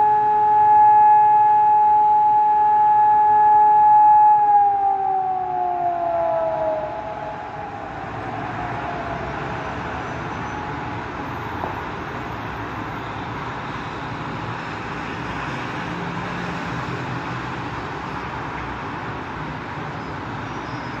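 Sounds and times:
siren falling tone: 0:00.0 - 0:10.9
distant traffic rumble and hiss: 0:04.6 - 0:21.0.

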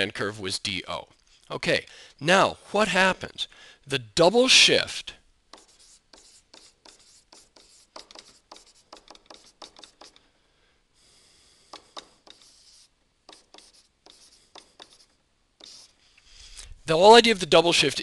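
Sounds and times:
stylus scratching on tablet: 0:05.5 - 0:10.2, 0:11.6 - 0:16.5.

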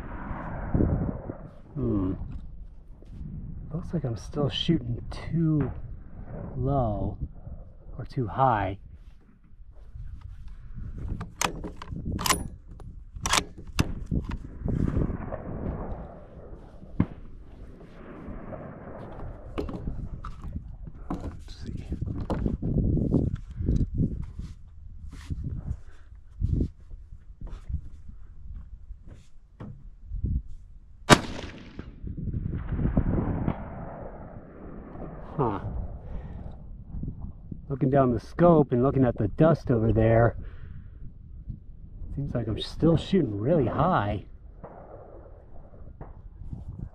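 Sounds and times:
low rumble: 0:00.0 - 0:29.0, 0:29.8 - 0:38.0, 0:38.6 - 0:46.9
rifle bolt clicks: 0:11.2 - 0:14.4
rifle shot crack: 0:13.2 - 0:20.4, 0:31.1 - 0:36.1, 0:44.6 - 0:46.2.

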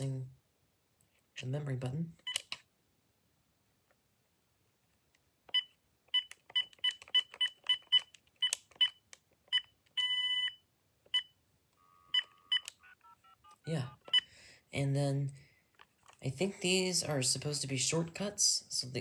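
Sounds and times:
phone key beeps: 0:05.5 - 0:14.3.

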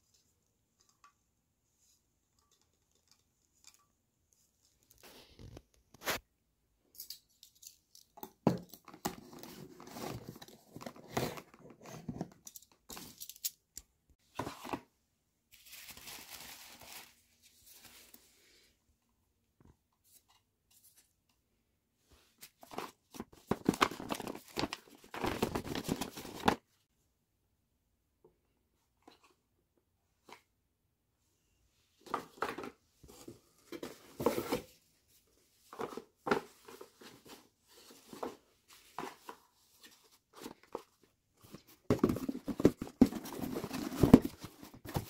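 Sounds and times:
cardboard and paper rustling: 0:08.9 - 0:13.3, 0:14.2 - 0:14.9, 0:15.5 - 0:18.2, 0:22.2 - 0:26.6, 0:32.0 - 0:45.0.

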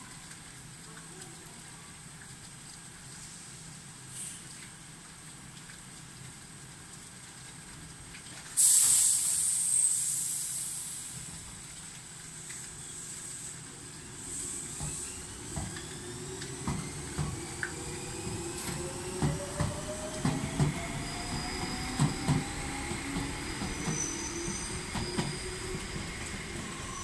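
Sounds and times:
electric train whine: 0:13.0 - 0:27.0.

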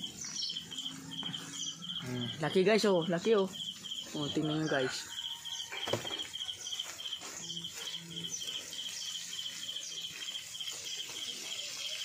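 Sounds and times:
insect chirping trills: 0:00.0 - 0:12.0.

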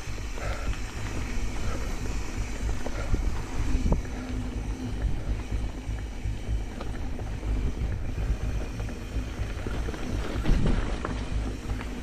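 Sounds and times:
bike tyres clicking and rattling: 0:00.0 - 0:12.0
wind rumble on microphone: 0:00.0 - 0:12.0.

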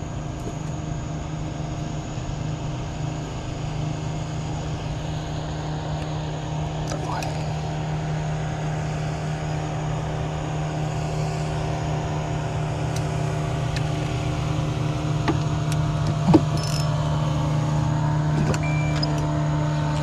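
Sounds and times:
engine humming: 0:00.0 - 0:20.0.

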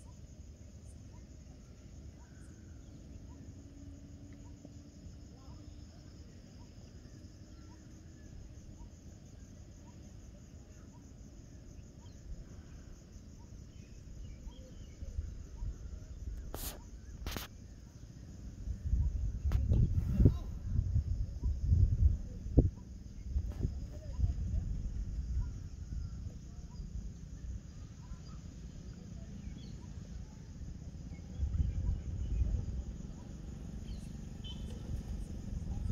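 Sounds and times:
crickets trilling: 0:00.0 - 0:35.9
insects buzzing: 0:00.0 - 0:35.9
bird chirps: 0:13.4 - 0:17.3, 0:25.3 - 0:30.3, 0:31.1 - 0:35.9
wind on microphone: 0:18.6 - 0:26.5, 0:31.1 - 0:33.4, 0:34.0 - 0:35.9.

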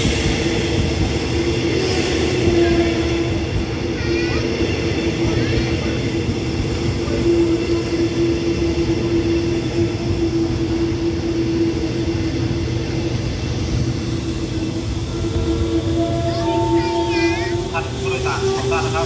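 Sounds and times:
train engine droning: 0:00.0 - 0:19.0.

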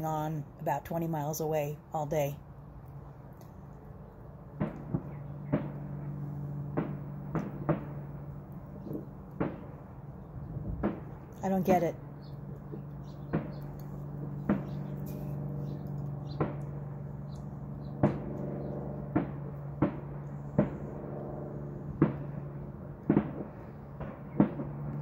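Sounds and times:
low hum: 0:00.0 - 0:25.0
fireworks bangs with echo: 0:04.6 - 0:05.9, 0:06.7 - 0:08.1, 0:08.8 - 0:09.8, 0:10.7 - 0:11.2, 0:13.3 - 0:13.6, 0:14.4 - 0:14.9, 0:16.3 - 0:16.7, 0:18.0 - 0:21.1, 0:22.0 - 0:24.9.

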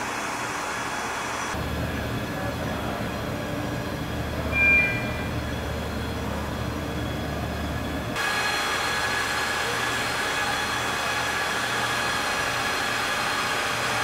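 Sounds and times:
heavy machinery hum: 0:00.0 - 0:14.0
brief high-pitched tone: 0:04.5 - 0:05.6.

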